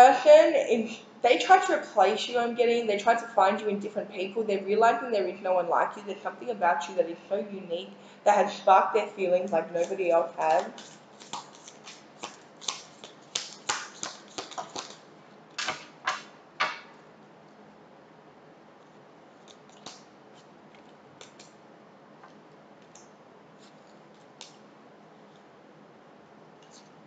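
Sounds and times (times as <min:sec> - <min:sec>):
cards being shuffled: 0:09.8 - 0:16.8, 0:18.8 - 0:21.6.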